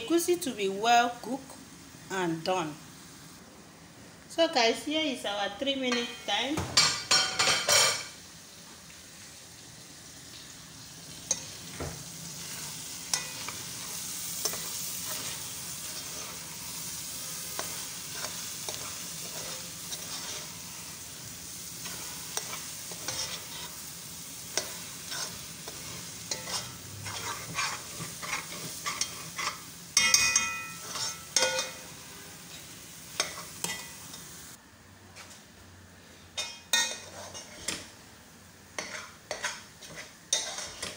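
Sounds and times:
food sizzling: 0:00.0 - 0:34.6, 0:36.4 - 0:40.9
metal spoon scraping a pot: 0:17.6 - 0:20.6, 0:24.6 - 0:31.8, 0:36.8 - 0:37.8, 0:38.8 - 0:40.9
spoon clinking: 0:30.0 - 0:31.8.

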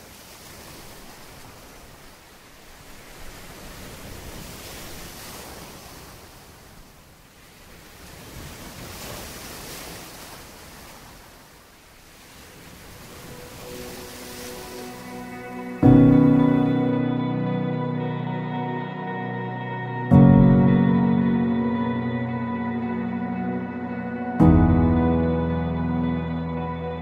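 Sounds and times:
waves: 0:00.0 - 0:27.0
wind: 0:00.0 - 0:27.0
soft music: 0:12.7 - 0:27.0.

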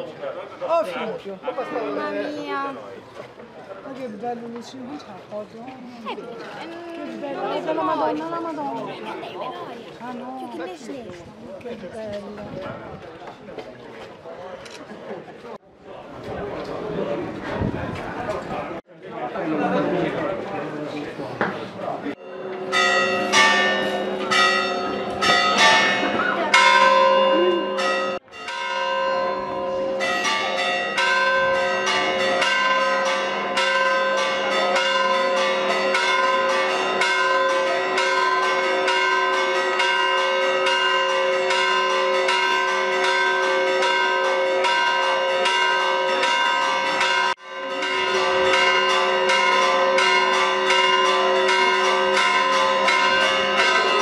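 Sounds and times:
church bells pealing: 0:22.1 - 0:54.0.

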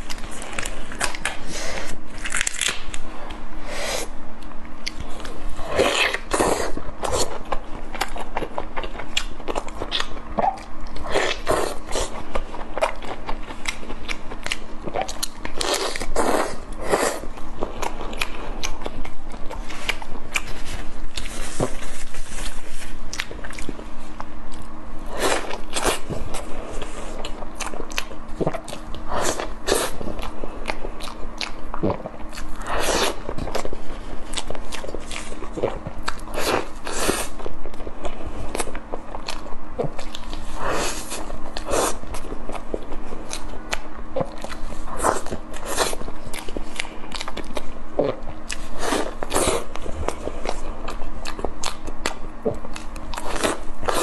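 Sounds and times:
close-miked chewing and biting: 0:04.4 - 0:54.0.

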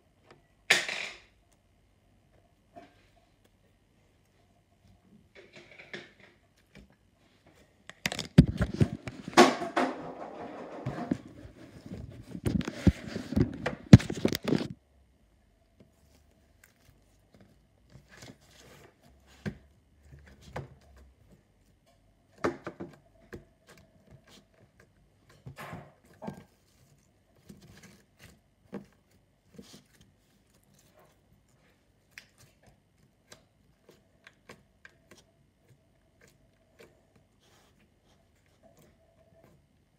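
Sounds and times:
handling noise at microphone: 0:08.0 - 0:14.8
putty squelching and tapping: 0:15.8 - 0:39.9.

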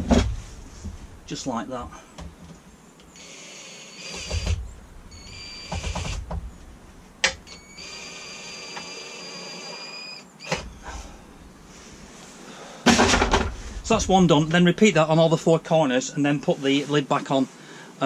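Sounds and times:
cordless drill motor whining: 0:03.0 - 0:06.3, 0:07.4 - 0:10.9.

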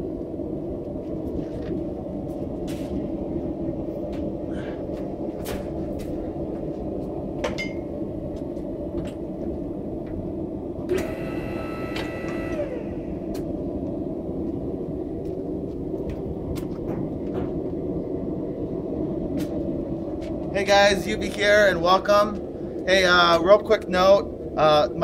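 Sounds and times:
high multi-tone whine: 0:05.2 - 0:25.0
electric pump motor humming: 0:10.8 - 0:13.8.

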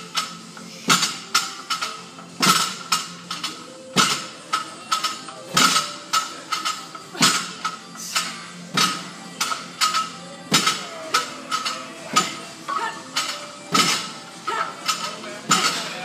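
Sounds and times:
barbell clanking: 0:13.1 - 0:16.0.

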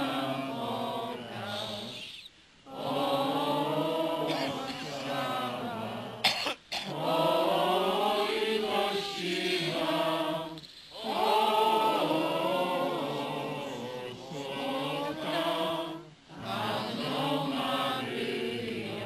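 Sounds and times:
crowd singing a hymn: 0:00.0 - 0:02.1, 0:02.7 - 0:19.0
loud cough: 0:04.3 - 0:04.9, 0:06.2 - 0:06.9.

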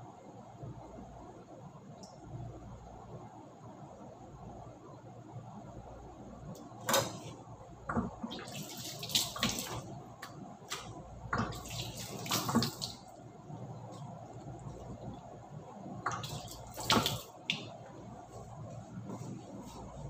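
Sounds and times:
tap water splashing: 0:07.9 - 0:13.1, 0:16.0 - 0:17.8.

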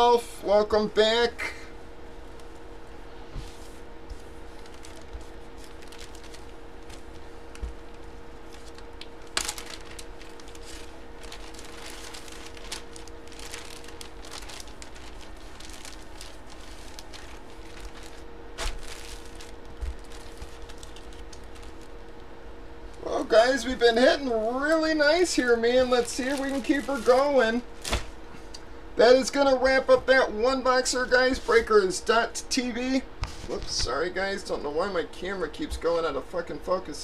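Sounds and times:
low hum: 0:00.0 - 0:29.0
plastic packaging crinkling: 0:04.2 - 0:28.2.

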